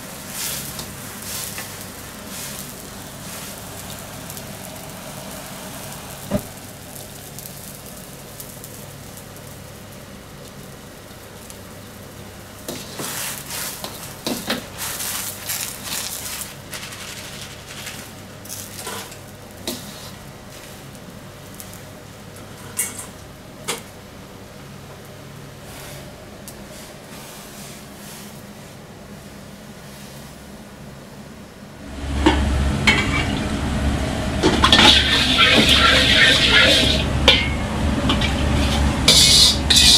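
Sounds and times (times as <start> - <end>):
water boiling and bubbling: 0.0 - 23.7, 31.8 - 39.9
metal clanks: 32.2 - 33.4, 34.4 - 39.9.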